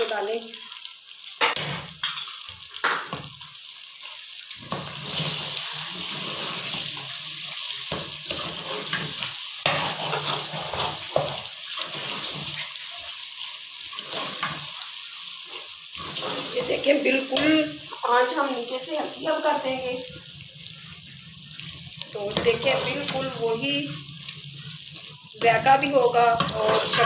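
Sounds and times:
food sizzling in hot oil: 0:00.0 - 0:27.0
spoon scraping steel pot: 0:26.4 - 0:27.0.

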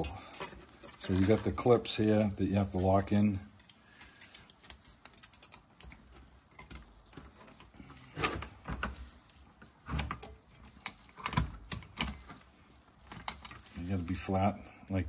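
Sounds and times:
metal clips clicking and scraping: 0:03.6 - 0:12.4, 0:13.1 - 0:13.8.

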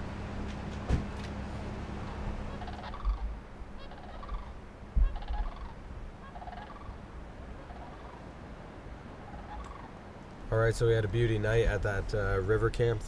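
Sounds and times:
steady background noise: 0:00.0 - 0:13.0
short rattling animal calls: 0:02.0 - 0:07.0, 0:07.6 - 0:08.2, 0:09.2 - 0:10.0
low bumps: 0:04.3 - 0:06.1.

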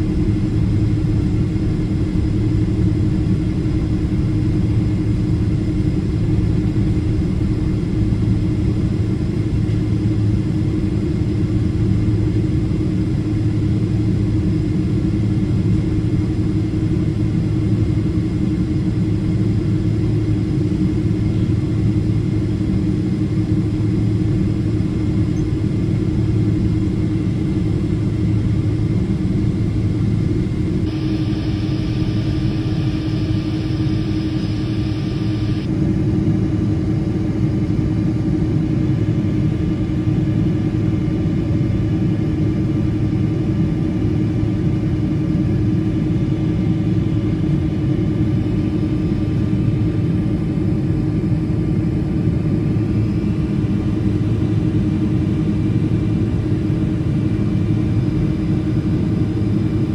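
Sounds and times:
jet engine cabin rumble: 0:00.0 - 0:59.9
high airflow hiss: 0:30.9 - 0:35.7.

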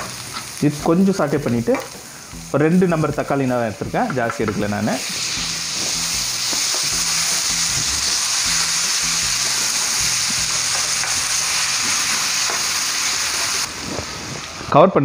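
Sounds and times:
tomatoes sizzling in hot oil: 0:00.0 - 0:14.7.

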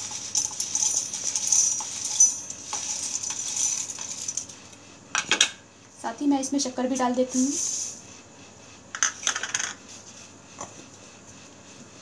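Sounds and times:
cardamom pods rattling into metal jar: 0:00.0 - 0:04.5.

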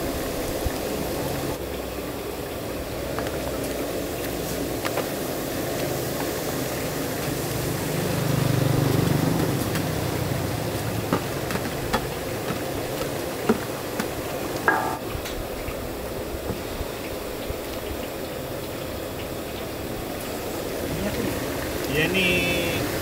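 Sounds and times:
food sizzling in oil: 0:00.0 - 0:23.0.

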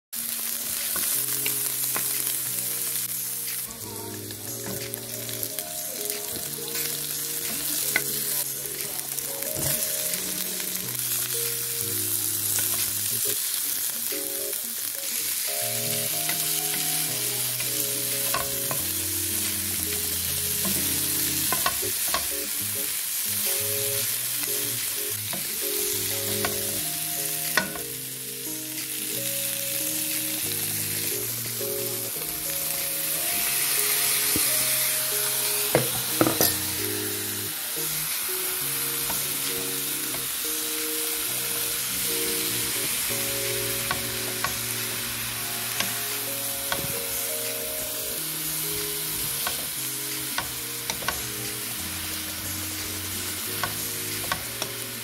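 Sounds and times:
vegetables and chicken sizzling in oil: 0:00.1 - 0:55.0.

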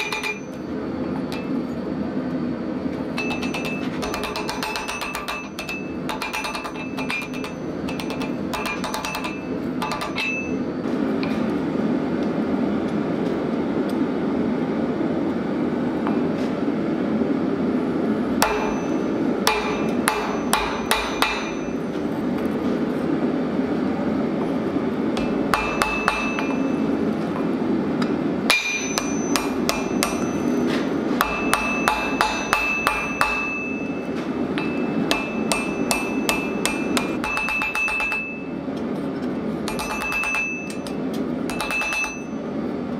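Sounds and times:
anvil ringing: 0:00.0 - 0:00.7, 0:03.1 - 0:10.7, 0:18.4 - 0:22.0, 0:25.2 - 0:27.0, 0:28.5 - 0:38.6, 0:39.7 - 0:42.5
hammer striking steel on anvil: 0:00.0 - 0:00.7, 0:03.1 - 0:11.4, 0:18.4 - 0:22.0, 0:25.2 - 0:38.6, 0:39.6 - 0:42.4.

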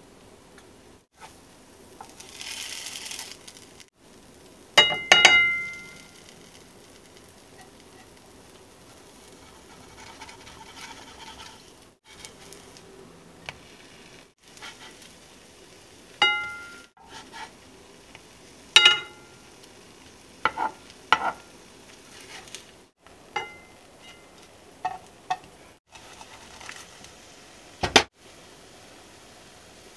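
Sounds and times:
pancakes sizzling in a frying pan: 0:00.9 - 0:29.9
spatula clinking on a pan: 0:04.8 - 0:06.2, 0:16.2 - 0:16.9, 0:18.8 - 0:19.4, 0:23.4 - 0:25.5.

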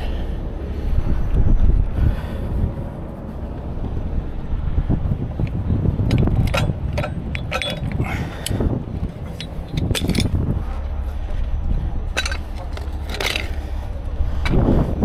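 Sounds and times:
low engine rumble: 0:00.0 - 0:15.0
metal rigging clanking: 0:05.4 - 0:11.0, 0:12.0 - 0:14.9.

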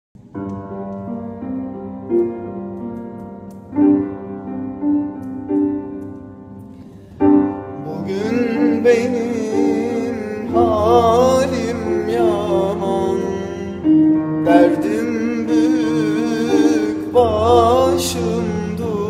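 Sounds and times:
slow piano chords: 0:00.2 - 0:19.0
man singing with vibrato: 0:07.8 - 0:19.0.

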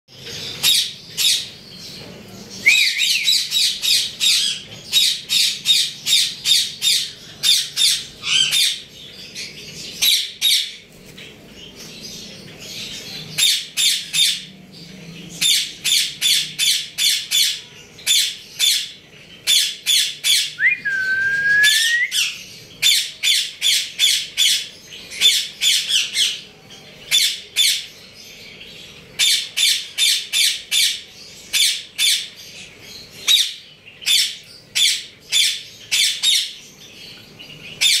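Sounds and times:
parrot rising whistle: 0:20.6 - 0:22.3.

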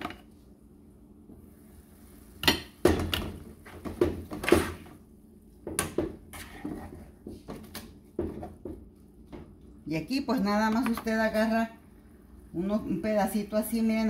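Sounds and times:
spoon scraping frying pan: 0:06.3 - 0:07.1.

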